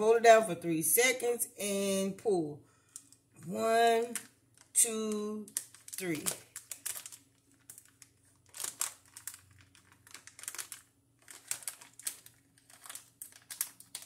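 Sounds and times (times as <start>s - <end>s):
plastic snack bag crinkling: 3.9s - 14.0s.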